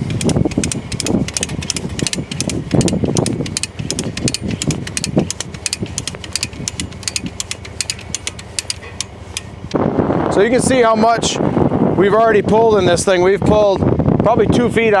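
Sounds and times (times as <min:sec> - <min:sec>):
ratchet clicking quickly: 0:00.0 - 0:09.8
engine idling: 0:00.0 - 0:09.9.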